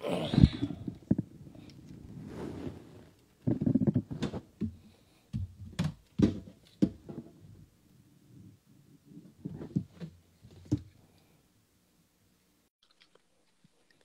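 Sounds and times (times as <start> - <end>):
rubbing sounds: 0.8 - 4.5.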